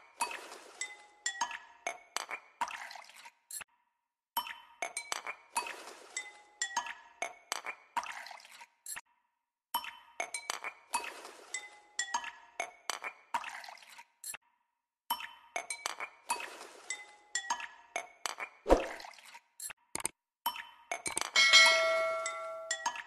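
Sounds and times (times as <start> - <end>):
chime-like background music: 21.4 - 23.0.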